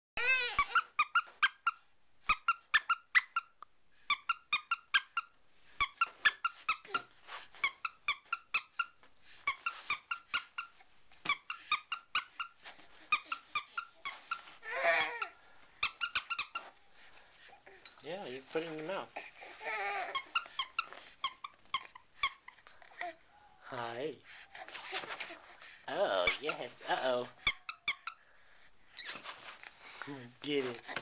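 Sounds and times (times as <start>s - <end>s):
squeaky toy squeaking: 0.2s - 17.1s, 17.7s - 23.2s, 26.2s - 29.4s.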